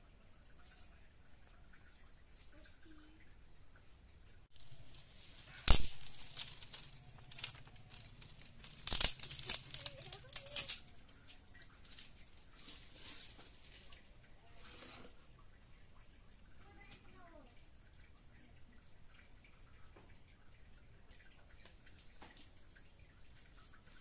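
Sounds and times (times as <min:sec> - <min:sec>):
sticks rustling: 0:04.5 - 0:15.2
dry sticks snapping: 0:04.9 - 0:10.9.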